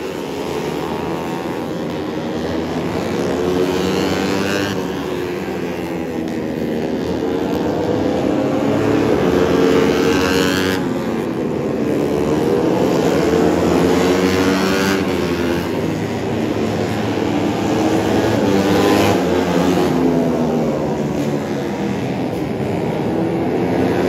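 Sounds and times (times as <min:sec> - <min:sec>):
race motorcycles engines running hard: 0:00.0 - 0:24.0.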